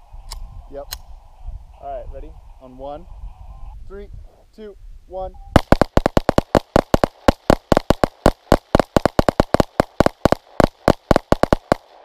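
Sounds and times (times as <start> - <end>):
rapid pistol gunshots: 5.6 - 12.0.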